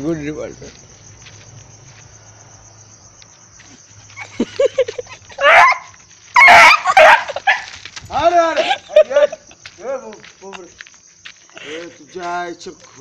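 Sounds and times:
dog barking: 5.4 - 7.7.

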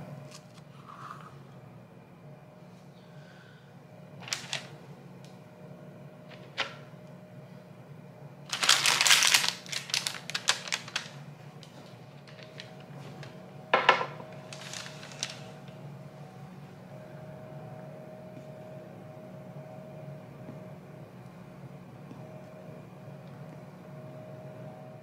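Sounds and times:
parchment paper crinkling: 4.2 - 4.8, 8.5 - 13.4, 14.3 - 15.8.

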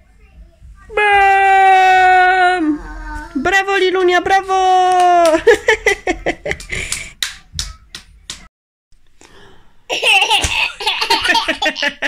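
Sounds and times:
baby clapping: 6.5 - 8.5
baby giggling: 9.9 - 12.0.

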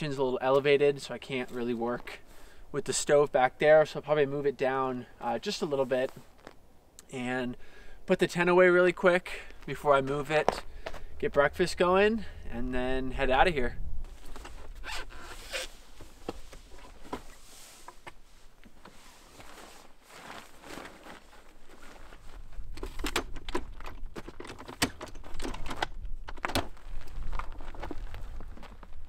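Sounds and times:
fabric rustling: 5.6 - 6.6, 14.0 - 22.8
canvas scraping: 14.1 - 22.7
zipper zipping: 14.8 - 15.8.

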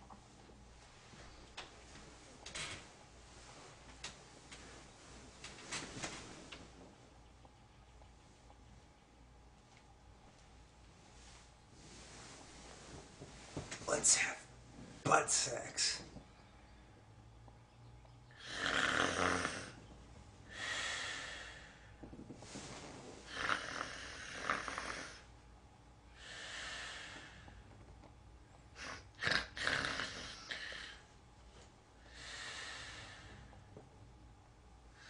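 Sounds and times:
woman snoring: 18.4 - 19.8, 23.3 - 25.3, 28.8 - 31.0.

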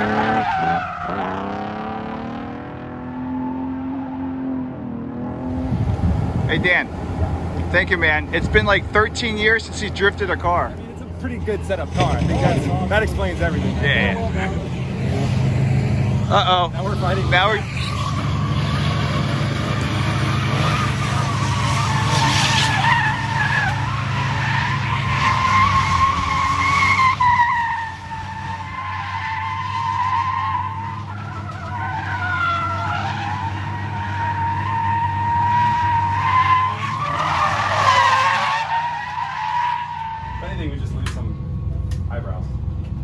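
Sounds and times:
tyres squealing: 20.1 - 40.8.

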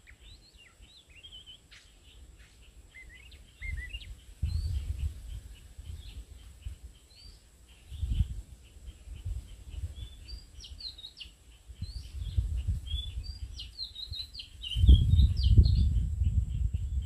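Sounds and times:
faint even chirping: 0.0 - 17.0
bird singing whistled phrases: 2.9 - 4.8.

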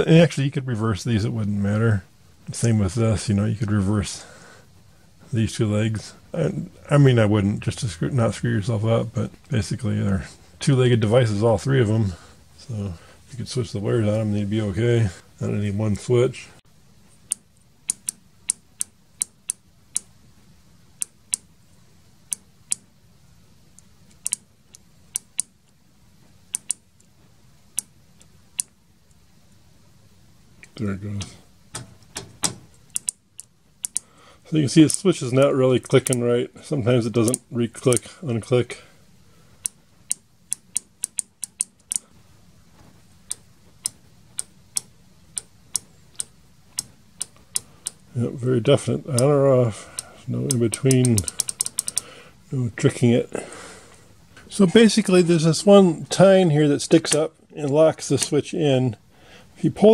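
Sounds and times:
person speaking: 0.0 - 4.6, 5.2 - 16.6, 30.6 - 33.1, 33.9 - 39.0, 46.2 - 59.0, 59.6 - 59.9
microswitch clicking: 17.2 - 20.1, 23.8 - 25.5, 26.5 - 26.8, 31.7 - 34.1, 37.3 - 38.1, 39.6 - 42.0, 43.3 - 48.0, 50.0 - 52.1.

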